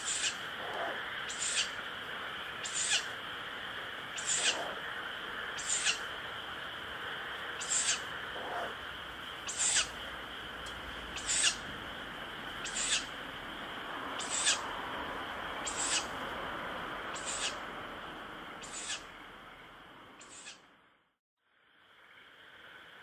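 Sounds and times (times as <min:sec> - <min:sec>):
owl chick hissing screech: 0:00.0 - 0:01.8, 0:02.6 - 0:03.2, 0:04.2 - 0:04.8, 0:05.6 - 0:06.1, 0:07.6 - 0:08.8, 0:09.4 - 0:10.0, 0:11.2 - 0:11.6, 0:12.6 - 0:13.2, 0:14.2 - 0:14.7, 0:15.6 - 0:16.1, 0:17.1 - 0:17.6, 0:18.6 - 0:19.1, 0:20.2 - 0:20.6
steady high hum: 0:00.0 - 0:23.0.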